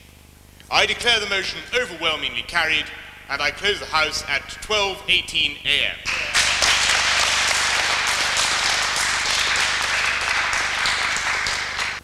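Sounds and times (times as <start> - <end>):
large audience applauding: 6.1 - 12.0.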